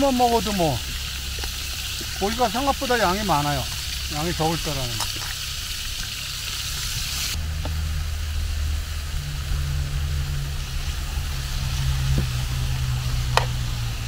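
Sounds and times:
low steady engine hum: 0:00.0 - 0:14.0
meat sizzling in a pan: 0:00.0 - 0:14.0.

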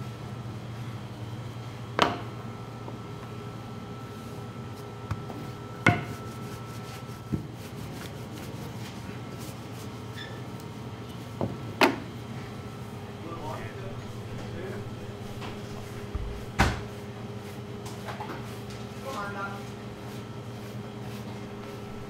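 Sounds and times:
rolling pin rolling dough: 0:04.2 - 0:10.1, 0:13.4 - 0:22.0
steady hum: 0:10.7 - 0:22.0.

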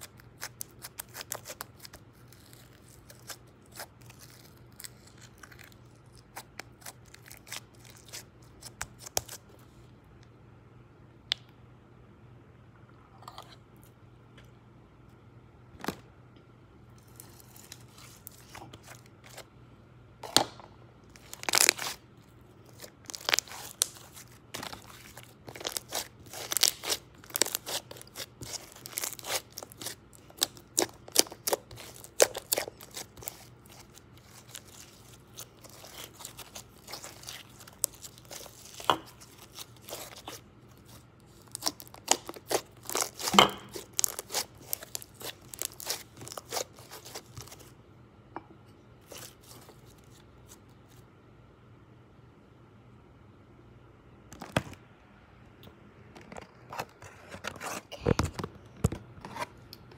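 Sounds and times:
slime squeezed by fingers: 0:21.2 - 0:22.0, 0:22.7 - 0:47.6.

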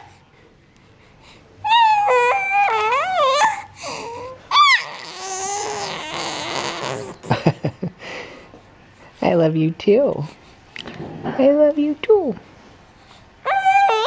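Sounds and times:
infant cooing and squealing: 0:01.7 - 0:07.3, 0:13.4 - 0:14.0.

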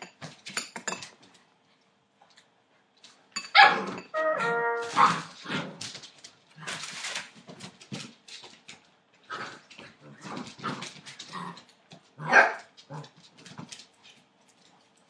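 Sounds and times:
puppies barking and growling: 0:03.4 - 0:05.9.

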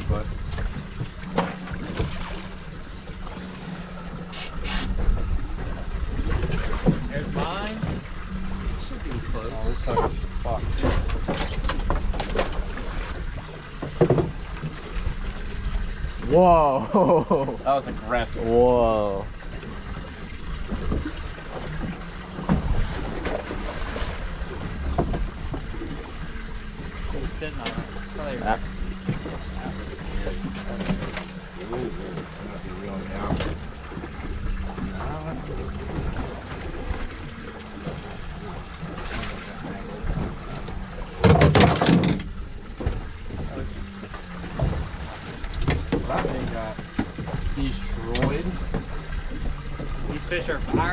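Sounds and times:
water lapping against boat hull: 0:00.0 - 0:50.9
wind: 0:00.0 - 0:50.9.

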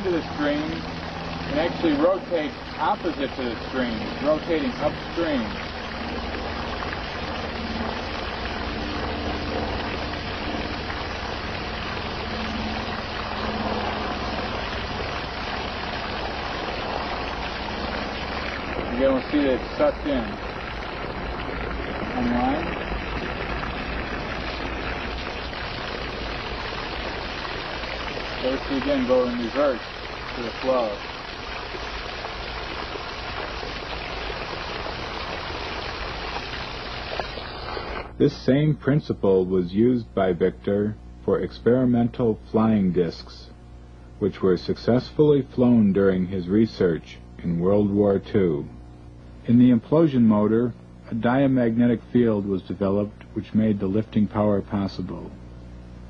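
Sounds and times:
water gushing from hose: 0:00.0 - 0:38.2
faint low hum: 0:00.0 - 0:56.0.

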